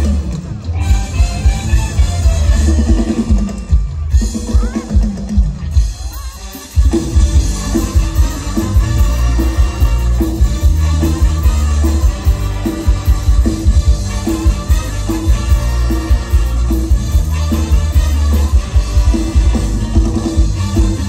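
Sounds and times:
live band music over loudspeakers: 0:00.0 - 0:21.0.

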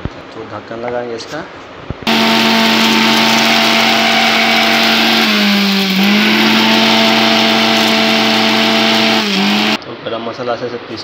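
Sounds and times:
mixer grinder grinding spices: 0:02.1 - 0:09.8.

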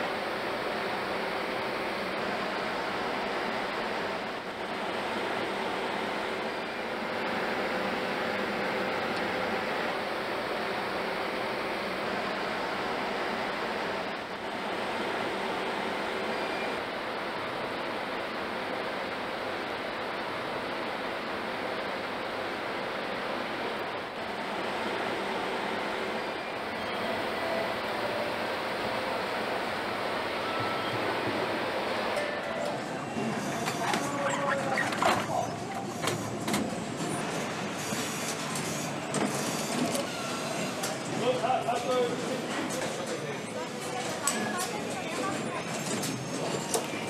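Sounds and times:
machinery noise: 0:26.1 - 0:47.0.

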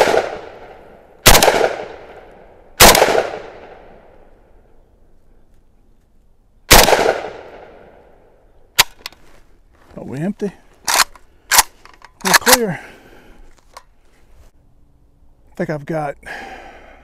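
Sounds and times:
rifle shots with echo: 0:00.0 - 0:04.1, 0:06.7 - 0:08.0.

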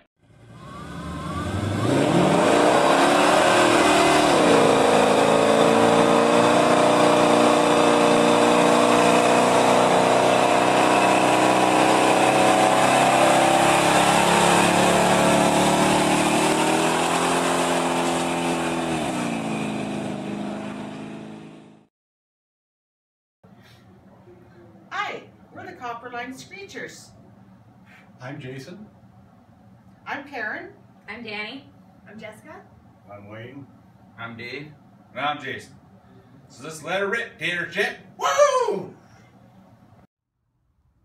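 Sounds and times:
car engine revving: 0:00.2 - 0:21.9.

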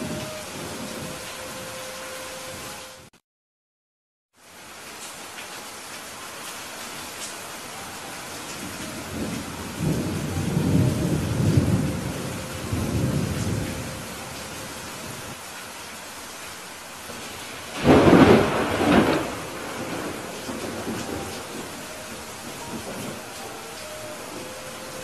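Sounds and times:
steady rain: 0:00.0 - 0:03.1, 0:04.3 - 0:25.0
thunder rumble: 0:08.6 - 0:15.4, 0:17.1 - 0:25.0
sharp thunderclap: 0:17.7 - 0:21.7.

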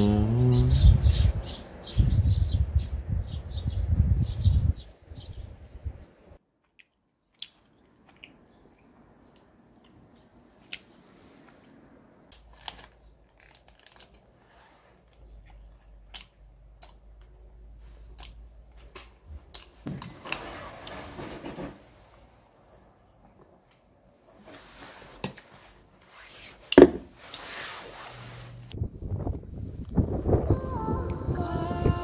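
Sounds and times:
close-up chewing: 0:06.5 - 0:19.8
plastic wrapper crinkling: 0:12.4 - 0:14.4.

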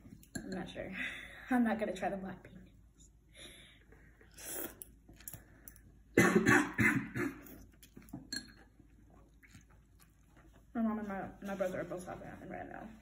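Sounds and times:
girl slurping noodles: 0:04.3 - 0:04.9
girl coughing: 0:06.2 - 0:07.5.

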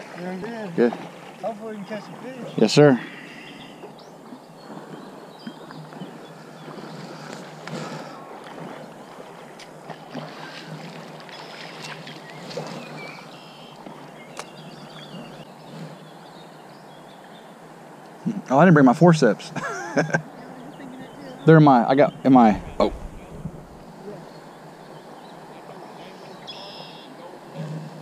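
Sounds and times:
river water lapping: 0:00.0 - 0:28.0
small clicks and splashes: 0:06.8 - 0:12.9.

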